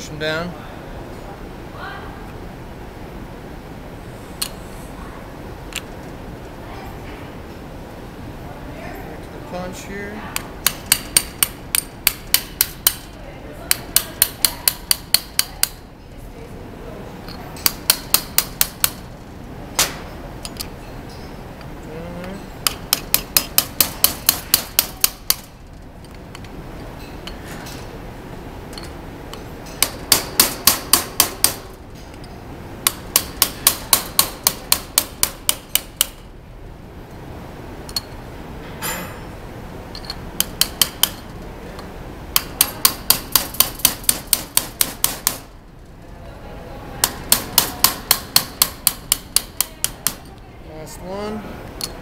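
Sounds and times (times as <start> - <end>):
hammer tapping metal punch: 10.4 - 13.1, 13.7 - 15.8, 17.6 - 19.1, 22.6 - 25.5, 28.8 - 31.8, 32.8 - 36.2, 40.0 - 41.3, 42.3 - 45.5, 47.0 - 50.3.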